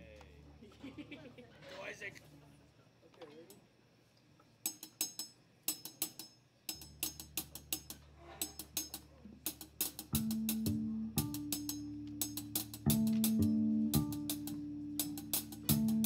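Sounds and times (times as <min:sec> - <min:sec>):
loud sustained guitar notes: 0:10.1 - 0:16.0.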